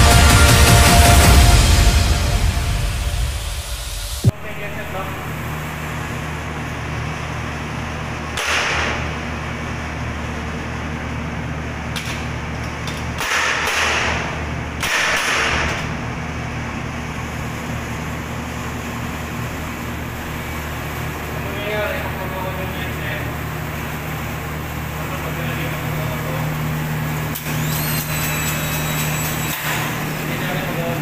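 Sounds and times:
steady electrical hum: 0:00.0 - 0:31.0
circuit breaker rushing bursts: 0:26.2 - 0:31.0.

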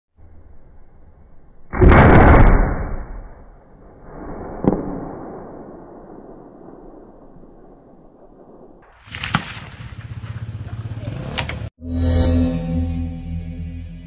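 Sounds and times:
rifle shot: 0:01.7 - 0:10.5
loud sharp crack: 0:01.8 - 0:10.5
gunshot with rolling tail: 0:01.8 - 0:10.8.

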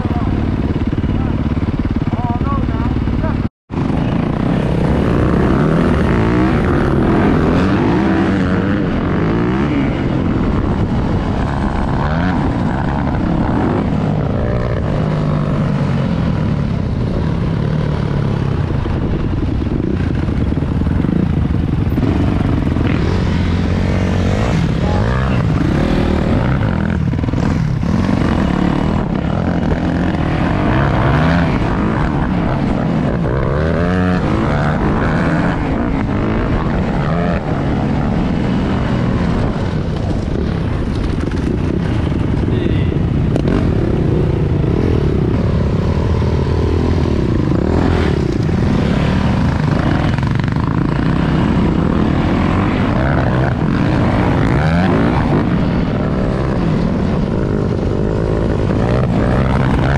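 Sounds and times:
dirt bike engines revving: 0:00.0 - 0:59.9.

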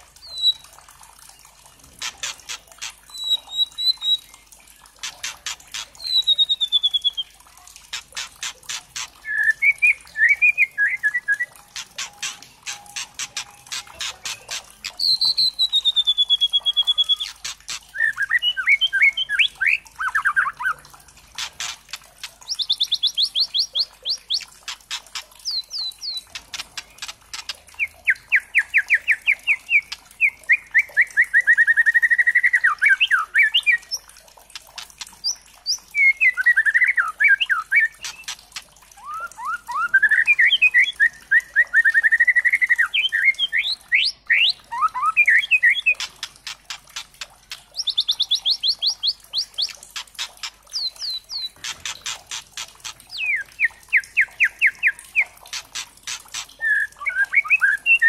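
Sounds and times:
bird rattling trills: 0:01.8 - 0:30.8, 0:34.5 - 0:36.5, 0:37.5 - 0:41.1, 0:44.7 - 0:58.0
sharp clicks: 0:11.7 - 0:15.0.

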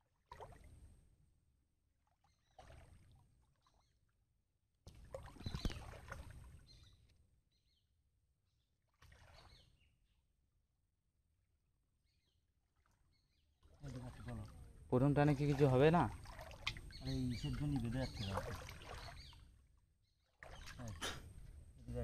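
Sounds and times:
shallow water splashing: 0:00.0 - 0:01.1, 0:02.0 - 0:04.2, 0:04.8 - 0:07.3, 0:08.8 - 0:10.1, 0:12.6 - 0:21.8.

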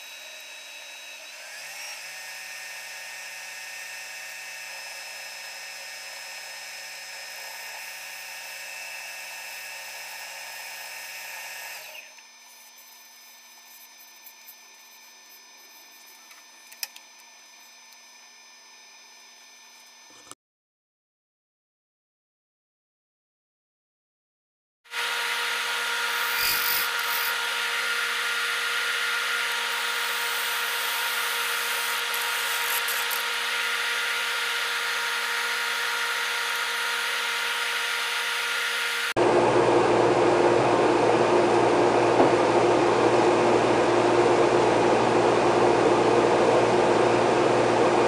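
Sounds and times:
wood lathe motor whine: 0:00.0 - 0:20.3, 0:24.9 - 0:39.6
tool scraping wood: 0:26.1 - 0:27.4, 0:29.5 - 0:33.4.

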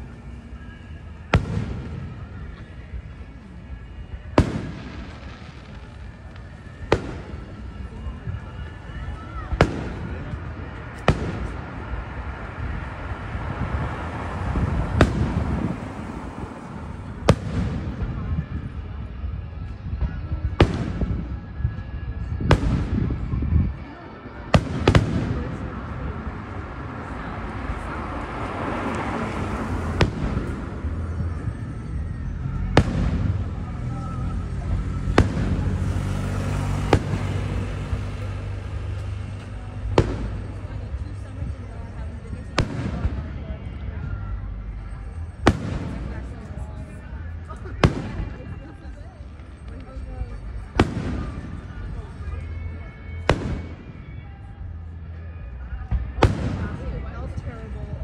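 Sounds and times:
continuous low rumble: 0:00.0 - 0:58.0
firework bangs: 0:01.1 - 0:03.0, 0:04.1 - 0:13.0, 0:14.5 - 0:18.6, 0:20.0 - 0:21.4, 0:22.2 - 0:23.3, 0:24.5 - 0:26.5, 0:28.5 - 0:33.8, 0:34.6 - 0:43.5, 0:45.2 - 0:46.5, 0:47.7 - 0:48.7, 0:50.6 - 0:52.1, 0:53.1 - 0:54.2, 0:56.0 - 0:57.0.

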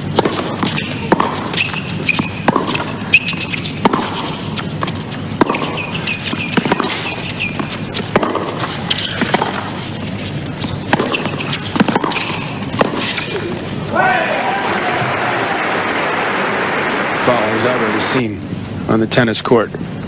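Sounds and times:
rackets striking tennis ball: 0:00.0 - 0:14.1
sneakers squeaking: 0:00.0 - 0:14.1
ball bouncing on hard court: 0:00.1 - 0:09.8, 0:10.6 - 0:13.5.

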